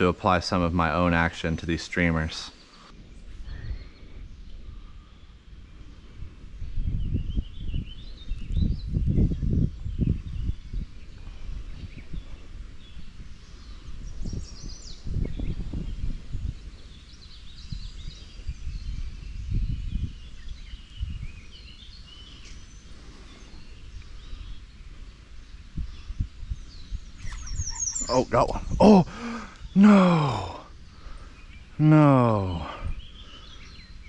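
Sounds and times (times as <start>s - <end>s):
birds chirping: 0.0s - 34.0s.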